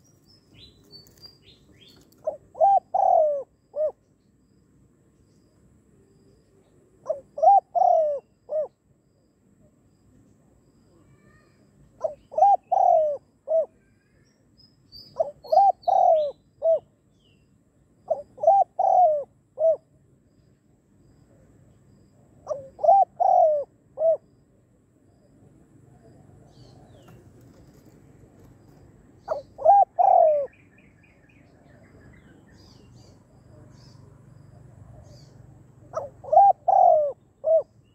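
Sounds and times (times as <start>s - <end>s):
dove cooing: 1.9s - 4.0s, 7.0s - 8.8s, 12.0s - 13.9s, 15.2s - 16.9s, 18.1s - 19.9s, 22.4s - 24.3s, 28.6s - 33.9s, 35.0s - 37.8s.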